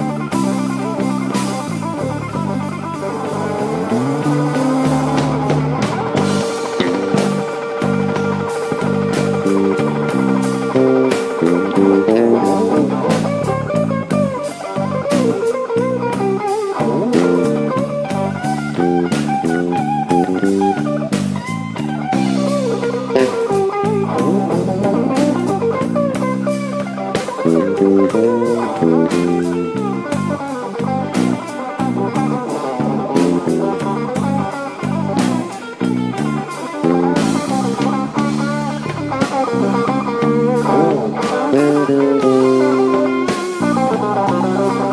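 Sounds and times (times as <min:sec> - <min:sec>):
bass guitar: 0:00.0 - 0:44.9
drum kit: 0:00.0 - 0:44.9
electric guitar: 0:00.0 - 0:44.9.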